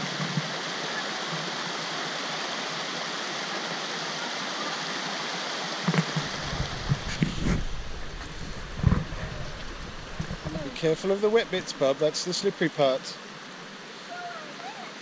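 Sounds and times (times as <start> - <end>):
creek water rushing over rocks: 0.0 - 15.0
low thumps and rumble: 6.0 - 11.1.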